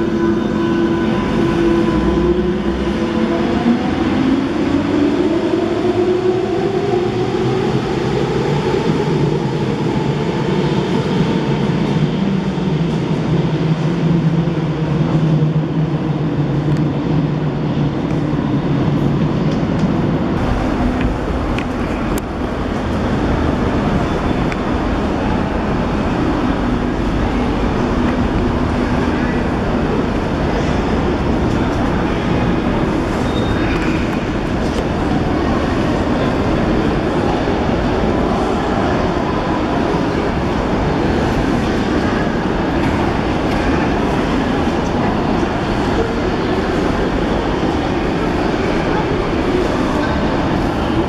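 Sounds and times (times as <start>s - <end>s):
train hum and rumble: 0.0s - 51.0s.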